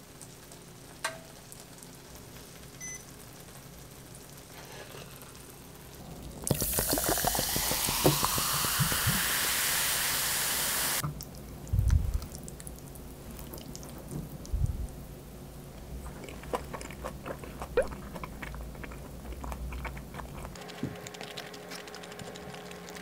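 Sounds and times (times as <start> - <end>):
water poured into a glass: 6.5 - 9.8
dull low thuds: 11.7 - 12.2.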